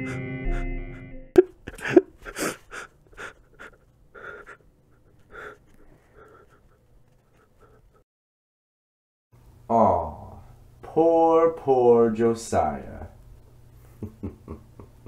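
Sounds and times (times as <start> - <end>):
panting breaths: 1.7 - 8.0.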